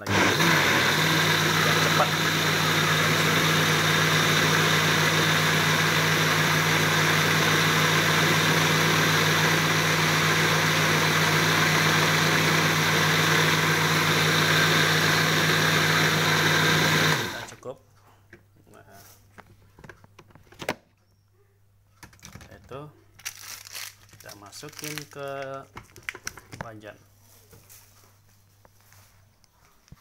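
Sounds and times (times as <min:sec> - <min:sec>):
electric blender motor running: 0:00.0 - 0:17.6.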